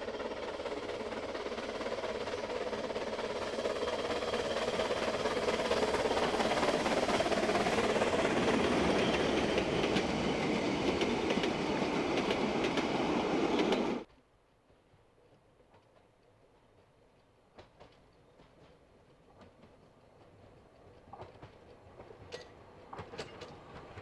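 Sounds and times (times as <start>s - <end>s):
steam train running: 0.0s - 14.1s, 15.2s - 24.0s
wheels clicking over rail joints: 15.2s - 24.0s.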